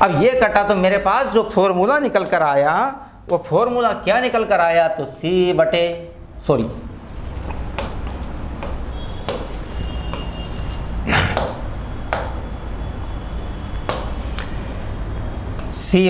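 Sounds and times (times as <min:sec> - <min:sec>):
pen tapping on a screen: 0:07.5 - 0:10.5, 0:11.4 - 0:12.4.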